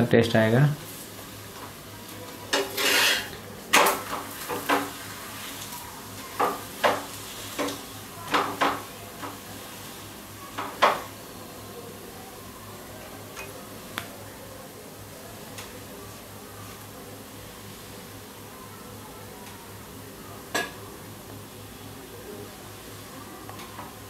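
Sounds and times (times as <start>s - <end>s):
spatula scraping on iron griddle: 2.5s - 5.8s.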